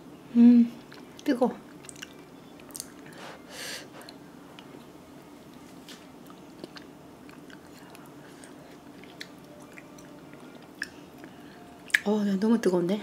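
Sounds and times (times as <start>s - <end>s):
low steady hum: 0.0s - 13.0s
soft chewing: 0.8s - 4.9s, 5.5s - 12.1s
lip and tongue clicks: 0.9s - 3.1s.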